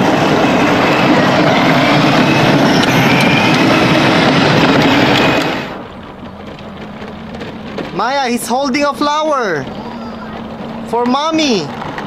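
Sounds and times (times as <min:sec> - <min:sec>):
electric motor and gearbox whine: 0:00.8 - 0:12.0
plastic wheels rumbling on concrete: 0:02.8 - 0:12.0.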